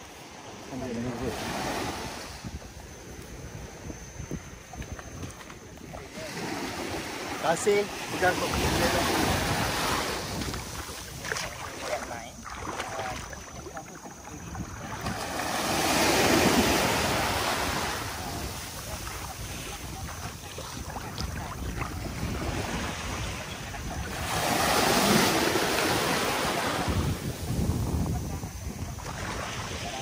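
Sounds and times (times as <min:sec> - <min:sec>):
small waves in shallows: 0:00.0 - 0:30.0
wind buffeting microphone: 0:01.0 - 0:30.0.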